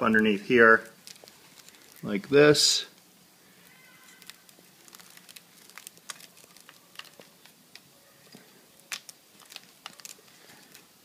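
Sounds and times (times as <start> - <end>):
clicks and rustling of wiring: 0.8 - 2.2, 3.6 - 10.9.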